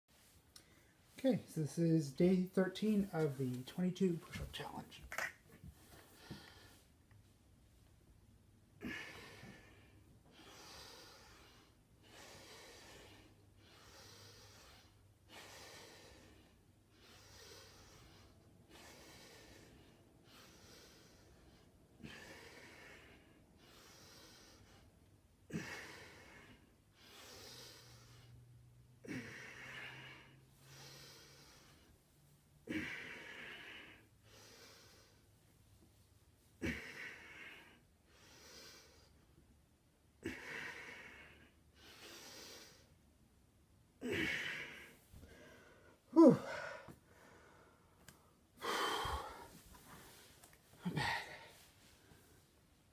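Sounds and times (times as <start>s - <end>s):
man breathing hard: 8.7s - 32.0s, 32.6s - 35.3s, 36.6s - 39.3s, 40.2s - 43.0s, 44.0s - 52.6s.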